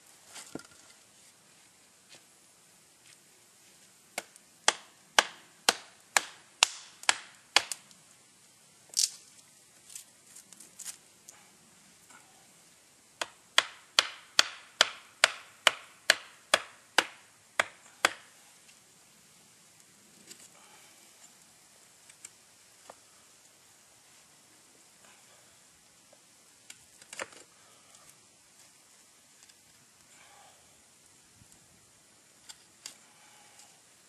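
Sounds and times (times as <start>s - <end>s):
axe chopping wood: 4.2s - 7.8s, 13.2s - 18.3s.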